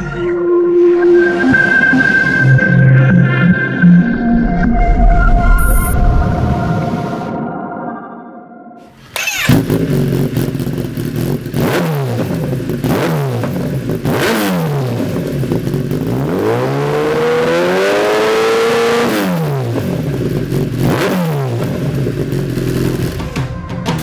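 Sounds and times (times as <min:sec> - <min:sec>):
motorcycle engine revving: 0:08.9 - 0:23.6.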